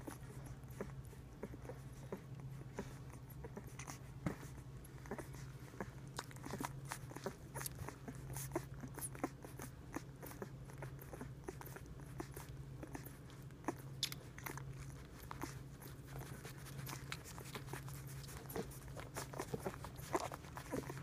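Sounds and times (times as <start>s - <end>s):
puppies suckling: 0.0s - 21.0s.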